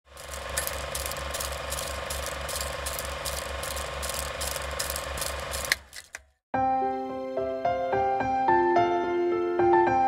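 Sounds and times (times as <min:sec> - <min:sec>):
film projector clattering: 0:00.0 - 0:06.3.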